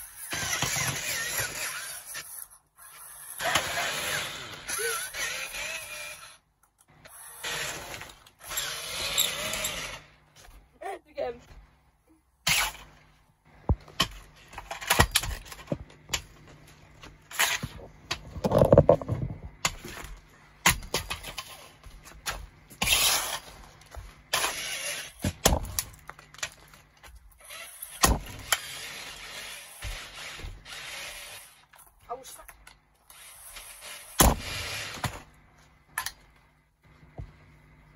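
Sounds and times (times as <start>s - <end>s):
toy car crunching under shoes: 0.1s - 6.4s.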